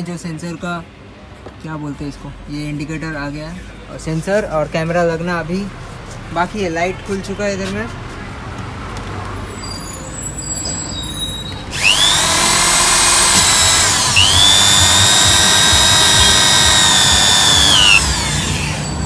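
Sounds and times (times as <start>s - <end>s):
electric drill whining: 11.7s - 19.0s.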